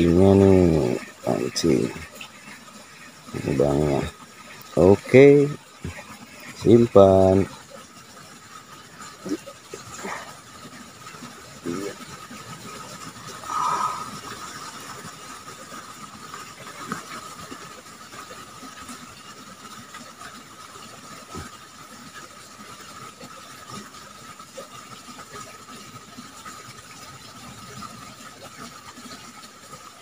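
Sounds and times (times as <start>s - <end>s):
even hiss: 0.0s - 2.1s, 3.3s - 7.5s, 11.6s - 12.0s, 13.3s - 15.0s.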